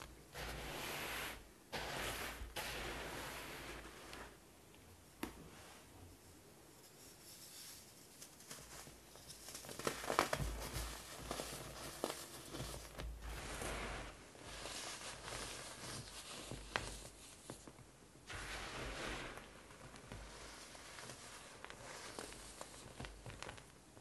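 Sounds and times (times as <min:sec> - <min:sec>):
powder sifting dry hiss: 0:00.0 - 0:04.4, 0:07.0 - 0:17.6, 0:18.2 - 0:23.5.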